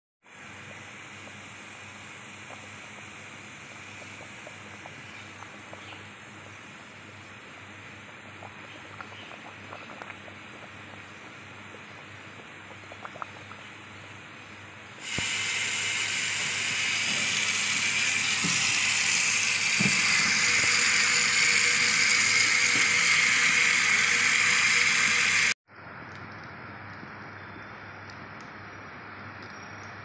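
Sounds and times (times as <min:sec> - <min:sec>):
water boiling in a pot: 0:00.2 - 0:25.6
tap water running into colander: 0:15.0 - 0:25.6.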